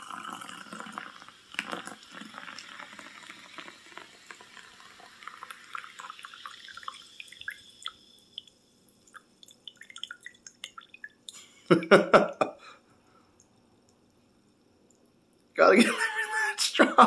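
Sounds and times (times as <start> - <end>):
liquid pouring into glass jar: 0.0 - 11.4.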